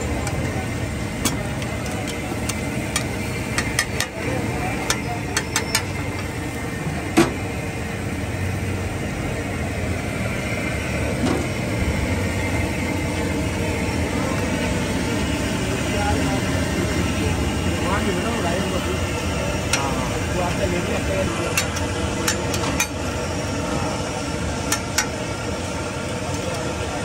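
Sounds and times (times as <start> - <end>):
street traffic noise: 0.0 - 27.0.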